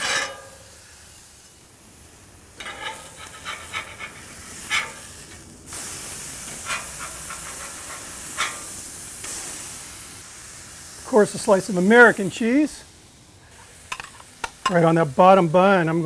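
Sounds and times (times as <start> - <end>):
metal spatula scraping griddle: 0.0 - 0.9, 2.6 - 9.0
beef patties sizzling: 0.0 - 16.0.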